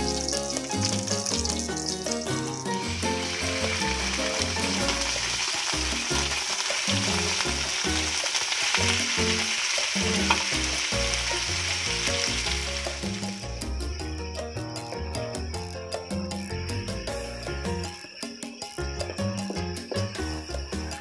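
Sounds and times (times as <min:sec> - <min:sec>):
chicken sizzling in hot oil: 0:00.0 - 0:15.8
background music: 0:00.0 - 0:21.0.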